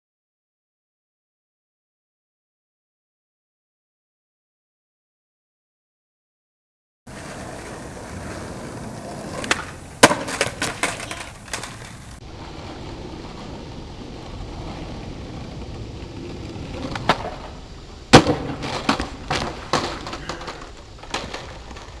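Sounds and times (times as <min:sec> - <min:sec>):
skateboard clacking on pavement: 0:07.1 - 0:22.0
skateboard wheels rolling on concrete: 0:07.1 - 0:22.0.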